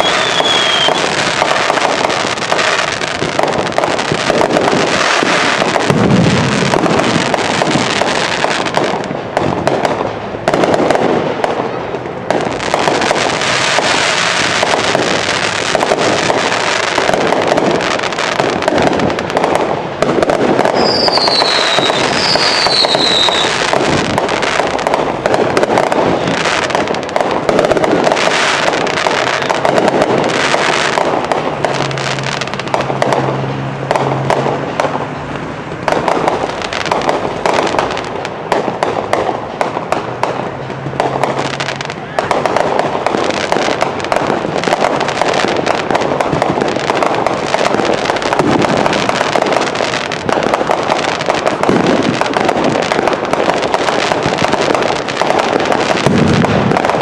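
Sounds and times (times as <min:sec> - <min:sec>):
falling firework whistles: 0:00.0 - 0:09.0, 0:20.2 - 0:39.2
fireworks bangs and crackling: 0:00.0 - 0:57.0.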